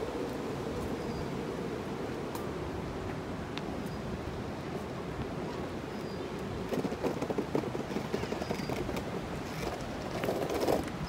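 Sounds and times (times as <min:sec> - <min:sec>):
longboard wheels rolling on paving: 0:03.0 - 0:11.0.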